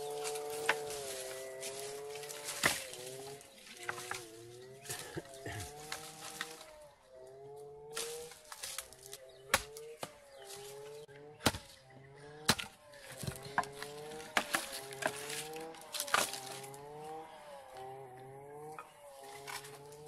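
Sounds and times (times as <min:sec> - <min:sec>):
hatchet chopping wood: 0:00.4 - 0:01.0, 0:02.2 - 0:04.3, 0:07.9 - 0:17.1.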